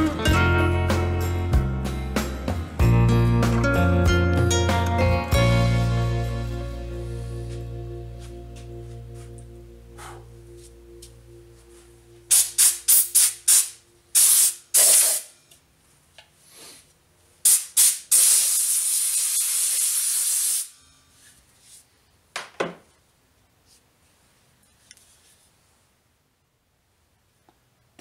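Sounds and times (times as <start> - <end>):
aerosol spray can hissing: 12.3 - 15.3, 17.5 - 20.7.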